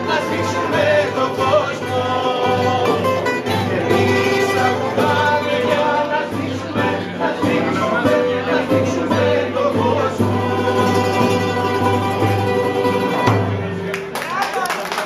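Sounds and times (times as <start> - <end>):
men singing: 0.0 - 13.4
bouzouki: 0.0 - 14.1
acoustic guitar: 0.0 - 14.4
frame drum: 2.0 - 13.9.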